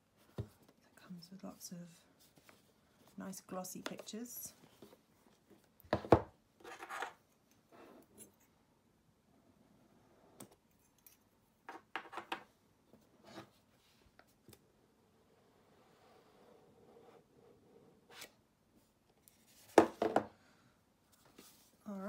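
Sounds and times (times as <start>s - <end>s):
box knocking and scraping on table: 19.7s - 20.3s.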